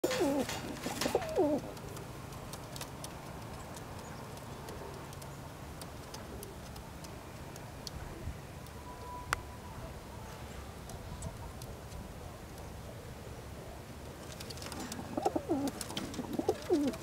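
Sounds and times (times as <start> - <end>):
pigeons cooing: 0.0 - 1.9, 14.6 - 17.0.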